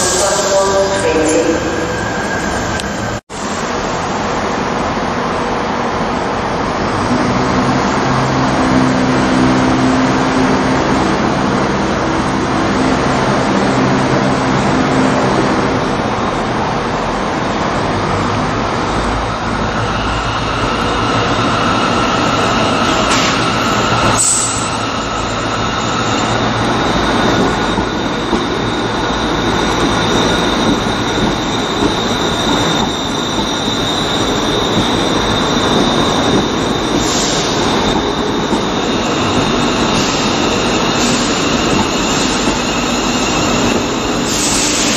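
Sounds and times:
train motor hum and wheel rumble: 2.7s - 44.9s
high-pitched wheel squealing: 19.8s - 44.9s.

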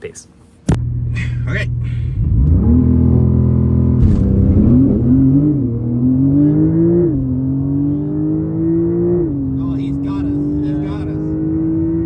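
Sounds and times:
car engine accelerating: 0.7s - 12.0s.

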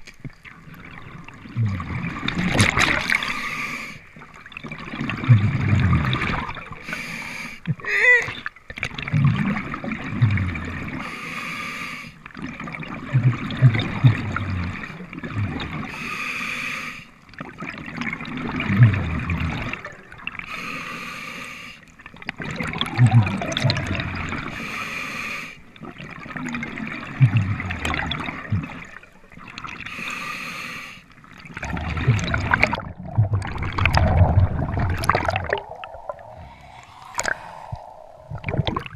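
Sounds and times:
regulator inhale hiss: 3.2s - 4.1s, 6.8s - 7.7s, 11.0s - 12.2s, 15.9s - 17.2s, 20.4s - 21.9s, 24.5s - 25.7s, 29.9s - 31.1s, 36.1s - 38.3s
gurgling exhaust bubbles: 12.7s - 15.8s, 22.4s - 24.5s, 25.8s - 29.0s, 31.5s - 38.9s.

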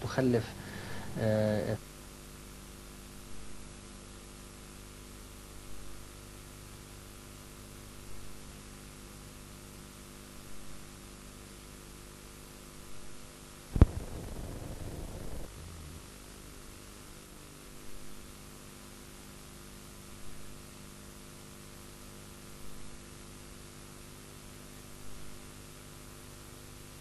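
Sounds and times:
electrical mains hum and hiss: 0.0s - 27.0s
crackling hiss: 13.7s - 17.3s
sharp pop: 13.8s - 16.1s.

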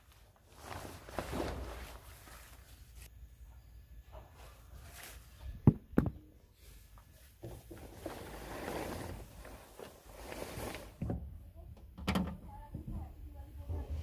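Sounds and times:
car cover rustling and crumpling: 0.0s - 3.1s, 7.8s - 11.0s.

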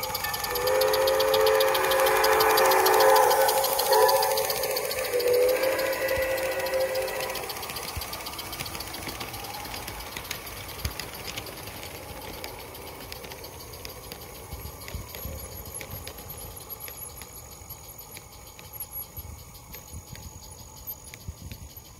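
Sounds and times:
steam train whistle: 0.0s - 9.9s
ticking of running train: 0.0s - 21.9s.

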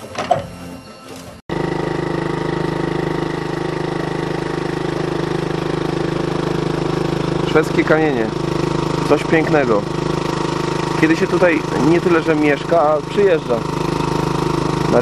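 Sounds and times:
boat motor pulsing: 1.5s - 15.0s.

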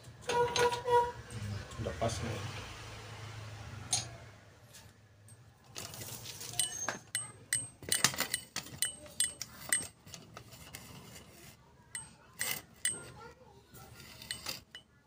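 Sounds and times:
metallic clinks: 5.2s - 10.4s.

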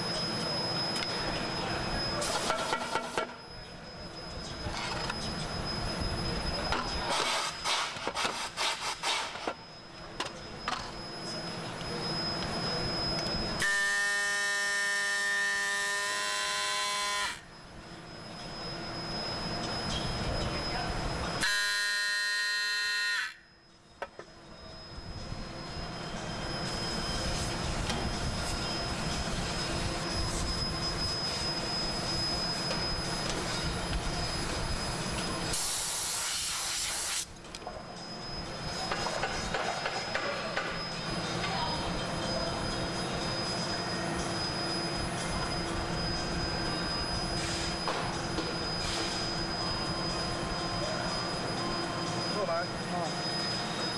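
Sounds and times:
machinery rumbling with whine: 0.0s - 8.1s, 9.3s - 21.9s, 23.2s - 36.0s, 37.3s - 53.9s
loud pitched buzz: 9.2s - 23.6s
loud hiss: 35.5s - 37.3s.

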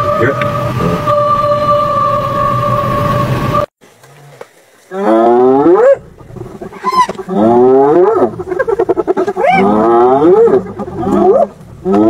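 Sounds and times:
high rising squeal: 0.0s - 3.7s
animal bellowing in distress: 4.2s - 12.0s.

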